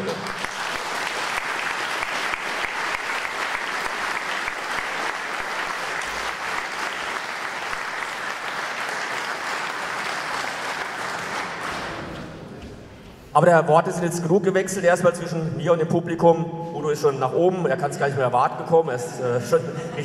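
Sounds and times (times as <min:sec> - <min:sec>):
large audience applauding: 0:00.0 - 0:12.4.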